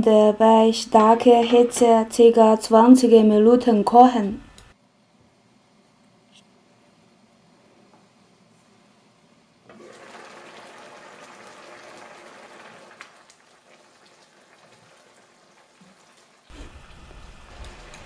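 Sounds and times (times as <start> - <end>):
stew bubbling in a pan: 9.7 - 18.0.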